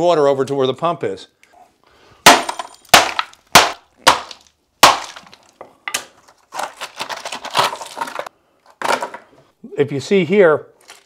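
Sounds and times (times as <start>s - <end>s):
broken concrete rattling and scraping: 5.1s - 9.3s.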